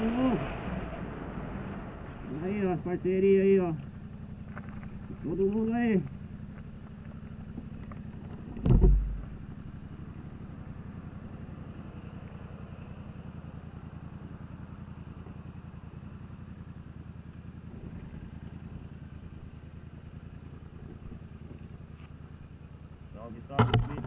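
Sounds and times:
motorcycle engine idling throb: 0.0s - 24.0s.

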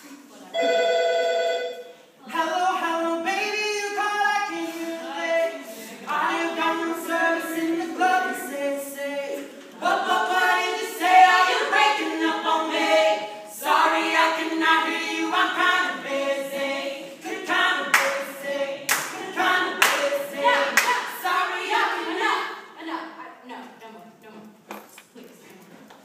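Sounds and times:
group singing in harmony: 1.6s - 23.0s
sharp claps: 18.9s - 19.2s, 19.8s - 20.1s, 20.8s - 21.0s.

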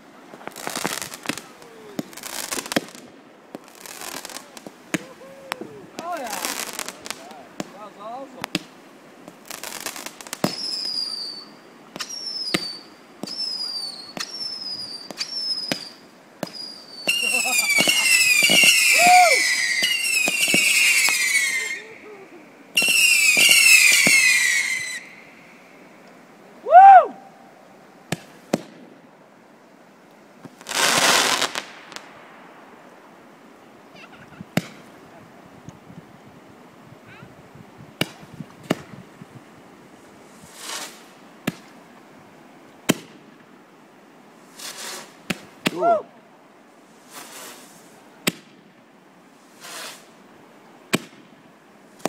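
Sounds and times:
fireworks crackling: 0.0s - 27.1s, 28.0s - 29.0s, 30.0s - 33.1s, 33.9s - 35.3s, 37.0s - 41.8s, 42.8s - 43.5s, 44.3s - 46.0s, 46.8s - 50.2s, 50.9s - 52.0s
fireworks bangs: 0.3s - 8.7s, 9.3s - 25.5s, 30.4s - 32.4s
falling high whistle: 10.5s - 22.2s, 22.8s - 25.3s, 26.6s - 27.4s
small pop: 38.0s - 38.9s.

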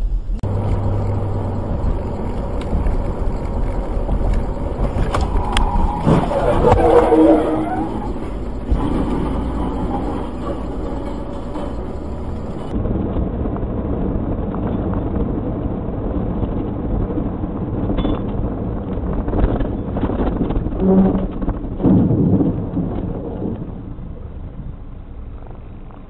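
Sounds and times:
car road and engine noise: 0.0s - 26.0s
truck crashing: 0.4s - 12.7s.

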